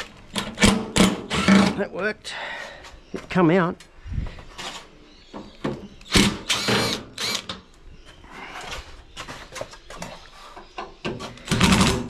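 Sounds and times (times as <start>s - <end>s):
cordless drill whining: 6.1s - 7.5s.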